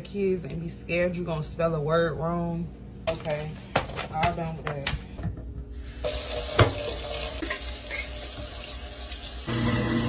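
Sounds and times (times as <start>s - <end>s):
steady low hum: 0.0s - 6.0s
tap running into metal sink: 6.4s - 8.6s.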